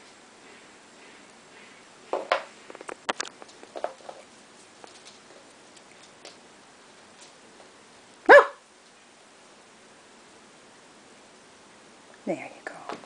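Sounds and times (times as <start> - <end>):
puppy scrambling on hardwood floor: 2.1 - 6.4.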